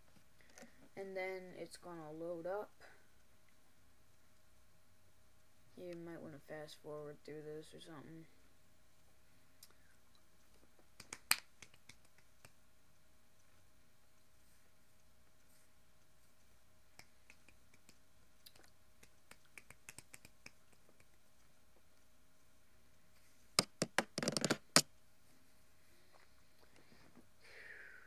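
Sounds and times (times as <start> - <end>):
faint clicks and taps: 9.0 - 24.5.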